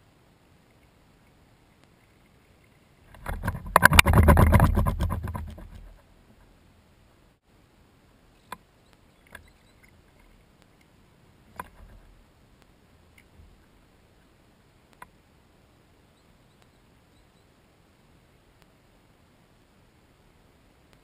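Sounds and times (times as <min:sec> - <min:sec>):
faint steady background: 0:00.0 - 0:21.0.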